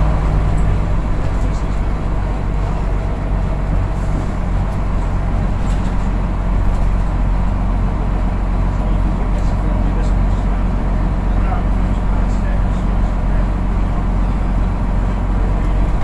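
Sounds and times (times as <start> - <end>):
bus engine drone: 0.0 - 16.0.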